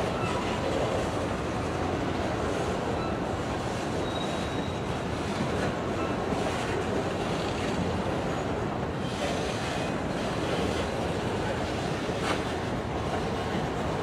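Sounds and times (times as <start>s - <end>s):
train wheels rolling on track: 0.0s - 14.0s
high wheel squeal: 4.0s - 4.8s.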